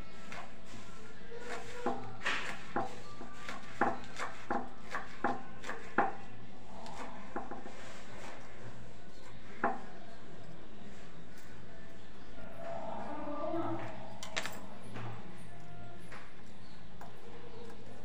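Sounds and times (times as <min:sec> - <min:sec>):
knife cutting vegetables: 0:01.4 - 0:08.3.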